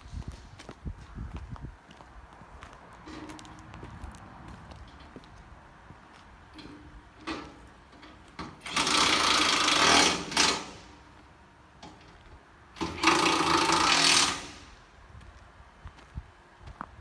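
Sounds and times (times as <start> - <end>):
power tool bursts: 8.6 - 11.0, 12.8 - 14.7.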